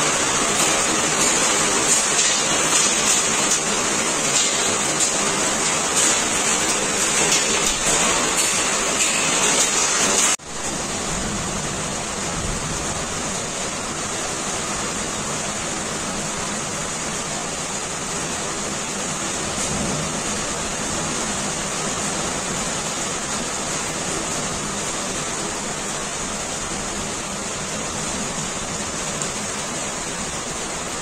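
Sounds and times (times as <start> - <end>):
heavy rain and hail: 0.0 - 31.0
rain on street and car: 0.0 - 31.0.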